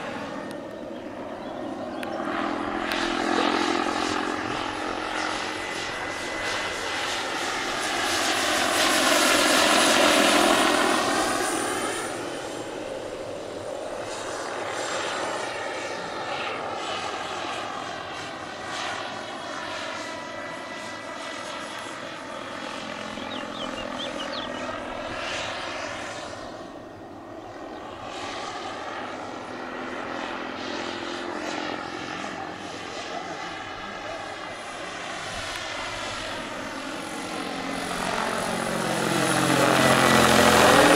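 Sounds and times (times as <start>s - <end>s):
helicopter rotor noise: 0.0s - 40.9s
model helicopter turbine whine: 0.0s - 40.9s.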